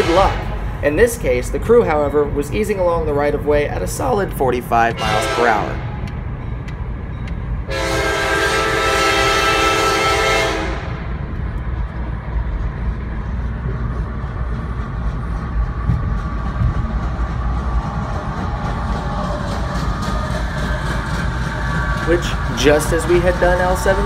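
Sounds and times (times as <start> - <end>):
locomotive air horn blast: 0.0 - 0.8, 5.0 - 6.0, 7.7 - 11.1
low rumble of moving train: 0.0 - 24.0.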